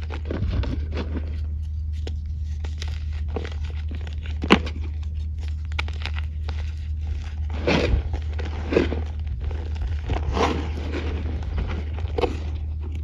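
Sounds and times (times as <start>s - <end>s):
dry clay snapping and crumbling: 0.0s - 13.0s.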